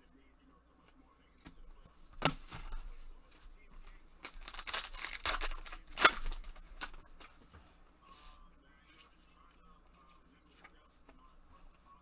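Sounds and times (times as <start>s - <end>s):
foil wrapper crinkling and tearing: 4.2s - 7.0s.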